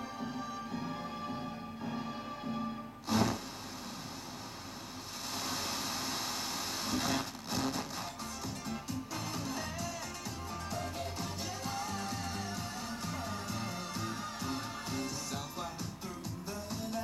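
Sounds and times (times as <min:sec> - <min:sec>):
music on radio: 0:00.0 - 0:17.0
radio hissing noise: 0:03.0 - 0:16.5.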